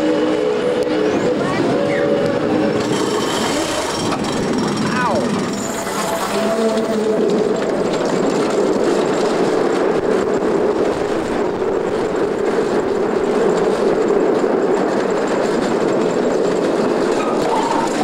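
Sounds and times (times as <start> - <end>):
roller coaster rolling rumble: 0.0 - 18.0.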